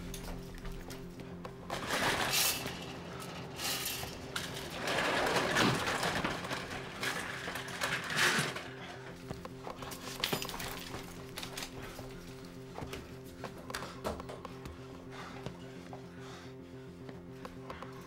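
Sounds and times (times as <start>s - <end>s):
film score music with pulsing drone: 0.0s - 18.0s.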